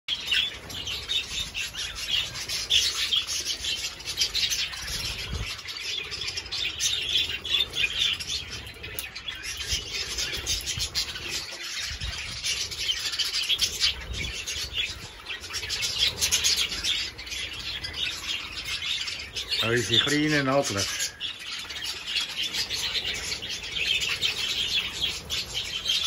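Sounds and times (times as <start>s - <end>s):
budgerigars chirping: 0.1s - 26.0s.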